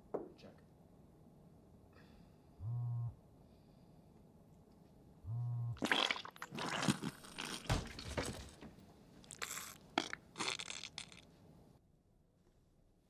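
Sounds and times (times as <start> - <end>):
chewing crunchy chips: 5.8 - 7.7, 9.2 - 11.3.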